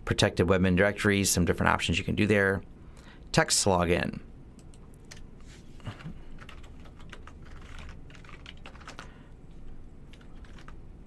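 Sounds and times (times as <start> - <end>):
typing on a computer keyboard: 6.4 - 9.2, 10.1 - 10.8.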